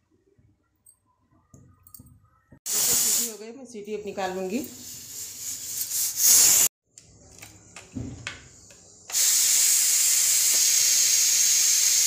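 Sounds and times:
pressure cooker steam hissing: 2.7 - 3.3, 4.8 - 6.7, 9.1 - 12.0.

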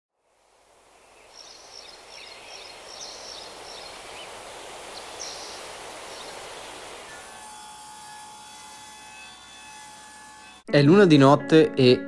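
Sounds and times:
open-air background hiss: 0.1 - 10.6
small birds chirping: 0.9 - 7.4.

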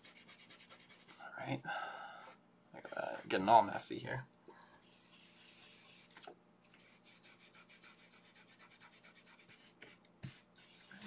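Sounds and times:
fingers scrubbing pastel on paper: 0.0 - 1.2, 2.8 - 3.8, 4.8 - 11.0.

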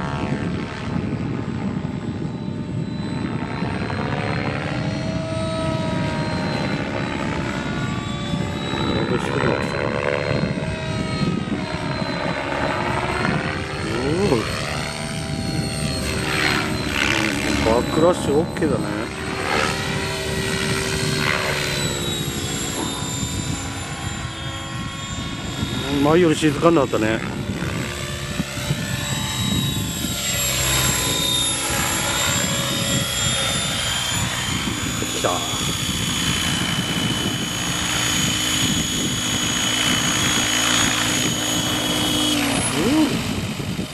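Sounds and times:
rc helicopter rotor and motor whine: 0.0 - 43.9.

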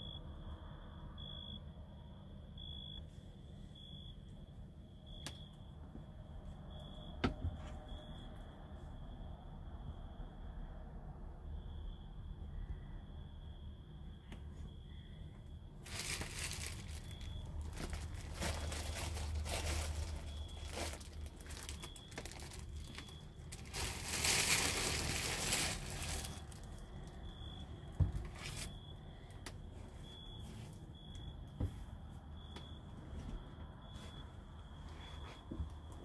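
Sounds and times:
crinkling and rustling: 15.8 - 31.9.

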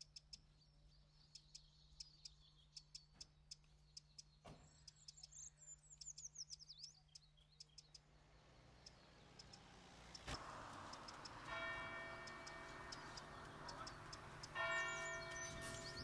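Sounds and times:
small birds chirping: 0.0 - 16.0
church bell ringing: 10.4 - 16.0.

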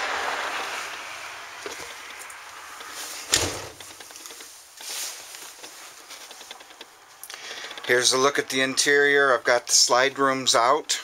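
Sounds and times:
highway traffic hiss: 0.0 - 11.0
sharp thump: 3.3 - 3.8.

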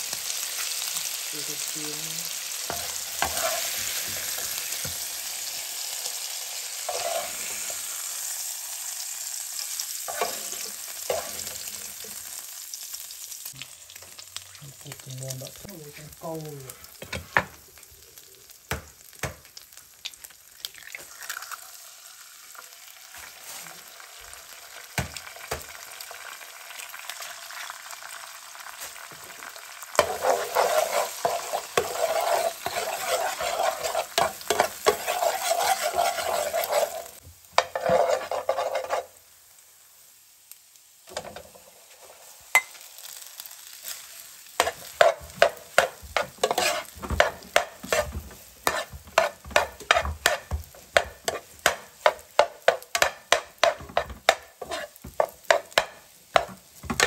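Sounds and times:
eggs sizzling in frying pan: 0.0 - 57.0
metal spoon scraping and tapping pan: 2.7 - 3.7, 10.1 - 11.5, 30.0 - 39.1, 44.6 - 57.0.

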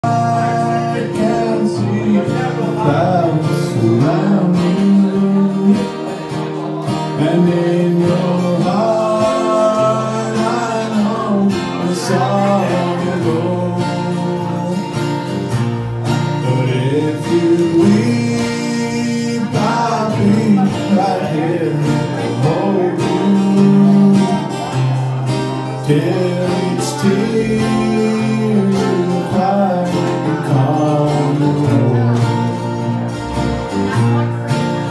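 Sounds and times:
people singing into microphones: 0.0 - 33.0
mandolin: 0.0 - 34.9
strummed acoustic guitars: 0.0 - 34.9.

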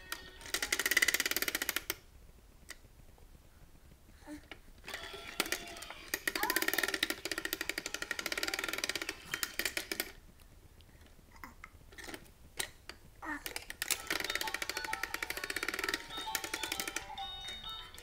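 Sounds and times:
toy being handled clicks: 0.0 - 2.0, 4.9 - 10.2, 11.9 - 18.0
toy ball beeping jingle: 14.0 - 18.0.

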